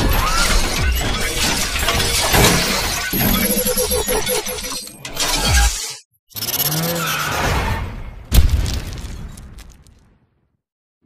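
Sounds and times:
music: 0.0 - 3.5.

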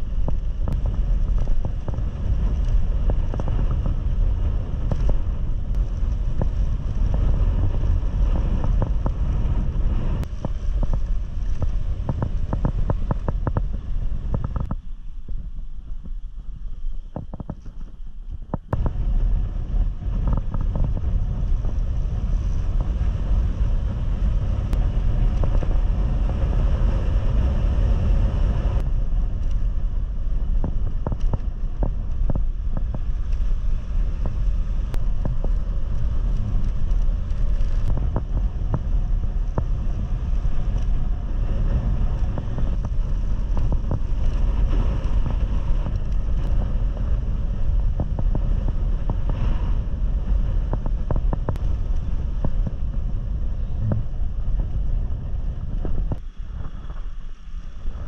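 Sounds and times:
wind rushing over microphone: 0.0 - 58.0
bike rattling over cobbles: 28.8 - 58.0.

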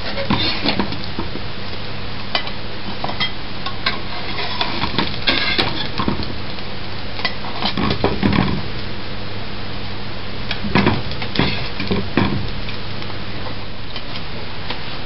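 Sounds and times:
metal fork scraping pan: 0.0 - 0.9, 3.1 - 6.0, 11.4 - 11.8
food sizzling in frying pan: 0.0 - 15.0.

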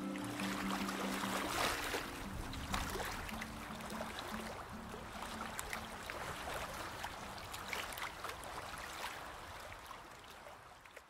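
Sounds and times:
sea water lapping: 0.0 - 11.0.

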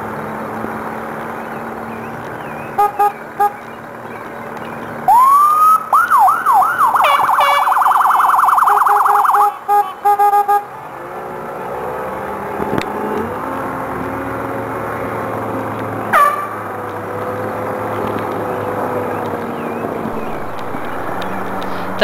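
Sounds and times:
electronic siren: 5.1 - 10.7, 20.1 - 22.0.

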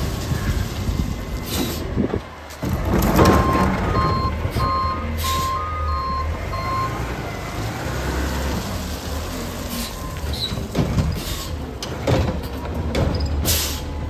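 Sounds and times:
truck engine rumble: 0.0 - 14.0
truck reverse alarm beeping: 3.3 - 7.1, 9.7 - 10.6.

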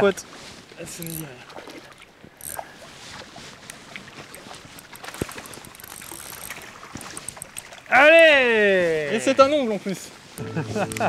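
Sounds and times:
water splashing and sloshing: 0.0 - 8.1.

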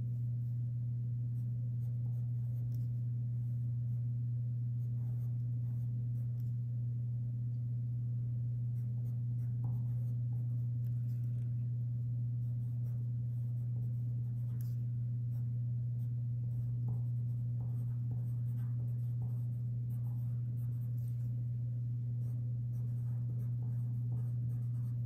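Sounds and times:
steady low hum: 0.0 - 25.0
pen scratching on paper: 8.8 - 11.4, 12.4 - 15.4, 16.5 - 21.3, 22.7 - 25.0.

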